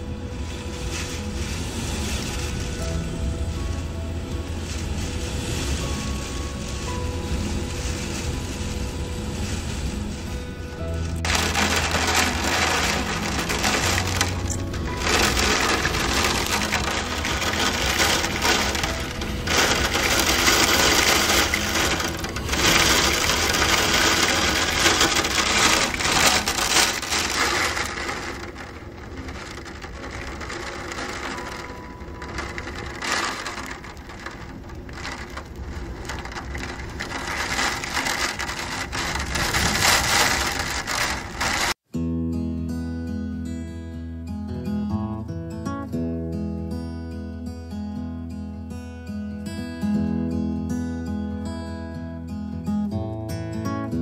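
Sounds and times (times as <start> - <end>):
gusting wind: 0.0 - 41.8
heavy rain: 0.0 - 41.8.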